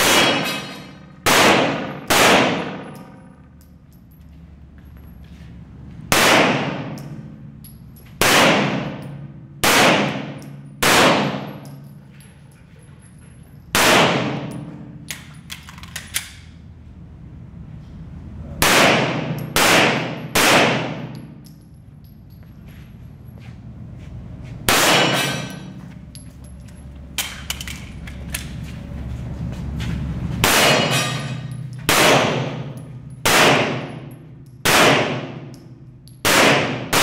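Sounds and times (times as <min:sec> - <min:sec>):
pistol shots echoing: 0:00.0 - 0:03.1, 0:06.1 - 0:07.0, 0:08.2 - 0:09.0, 0:09.6 - 0:11.6, 0:13.7 - 0:14.7, 0:18.6 - 0:21.2, 0:24.7 - 0:25.6, 0:31.9 - 0:34.0, 0:34.6 - 0:35.6, 0:36.2 - 0:37.0.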